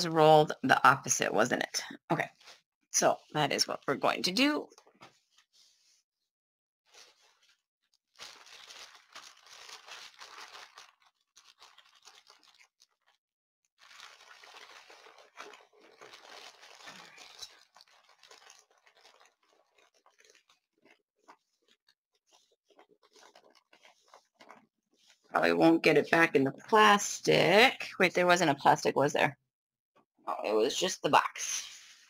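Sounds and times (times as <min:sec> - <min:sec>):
canvas and paper rustling: 0:02.1 - 0:06.2, 0:06.8 - 0:27.7.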